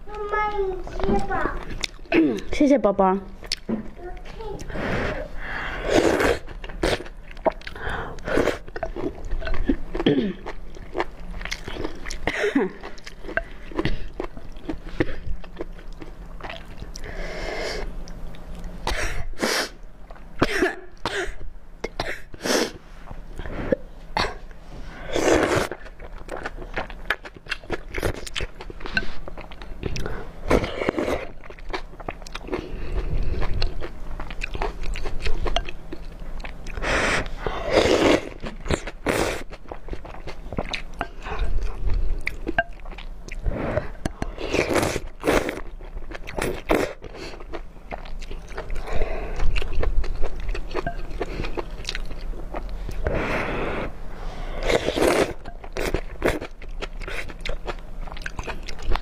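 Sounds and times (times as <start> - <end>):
wet chewing and smacking: 1.2 - 2.5, 3.3 - 4.3, 6.4 - 7.8, 8.6 - 17.1, 25.6 - 36.8, 38.3 - 53.1, 55.0 - 59.0.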